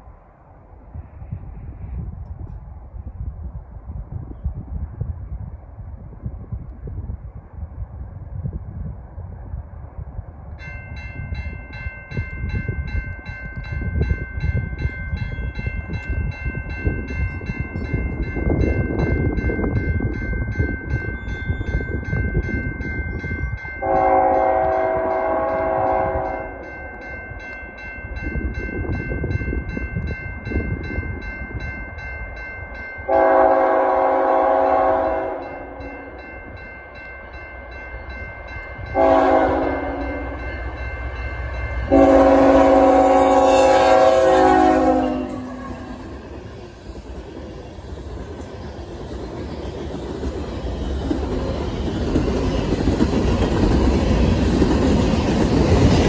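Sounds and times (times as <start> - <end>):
train rumbling on rails: 0.0 - 56.0
crossing bell ringing: 10.6 - 46.7
locomotive air horn: 23.8 - 26.6, 33.1 - 35.5, 39.0 - 40.4, 41.9 - 46.1.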